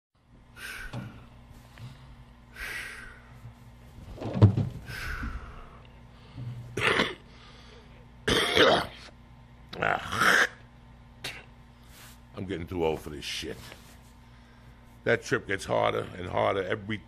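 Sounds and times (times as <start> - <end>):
faint low hum: 0.2 - 17.0
man breathing heavily: 0.5 - 3.8, 4.7 - 8.1, 14.2 - 15.0
dull thump: 4.2 - 4.9.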